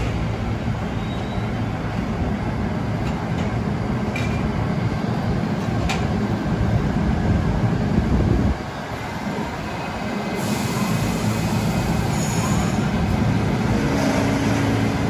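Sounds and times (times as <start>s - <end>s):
subway train rumbling: 0.0s - 15.0s.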